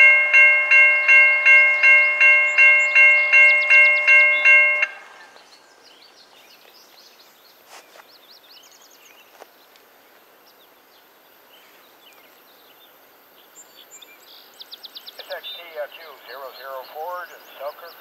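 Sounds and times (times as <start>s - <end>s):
railroad crossing bell ringing: 0.0s - 5.1s.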